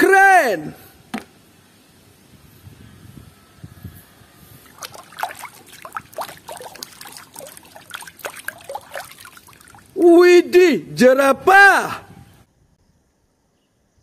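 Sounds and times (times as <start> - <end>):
water splashing in a plastic tub: 4.6 - 10.0
water dripping: 4.7 - 10.0.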